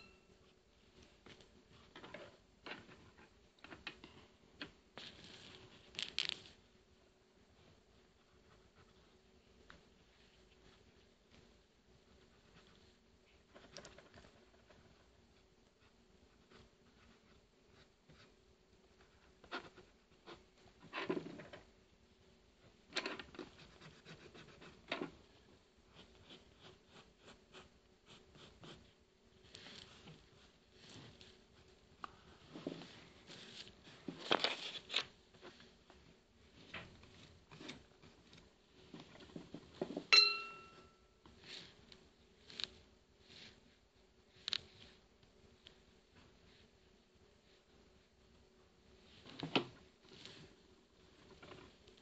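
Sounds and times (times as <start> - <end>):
pencil scratching on paper: 23.4 - 24.9, 25.9 - 28.9.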